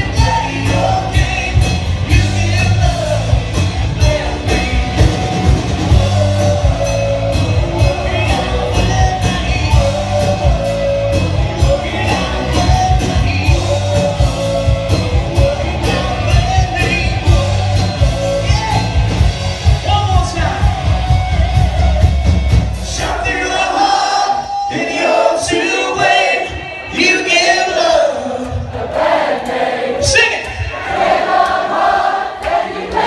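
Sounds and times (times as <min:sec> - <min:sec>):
bass guitar: 0:00.0 - 0:24.7
crowd singing and shouting: 0:00.0 - 0:33.0
drums: 0:00.0 - 0:33.0
lead vocals singing: 0:00.0 - 0:33.0.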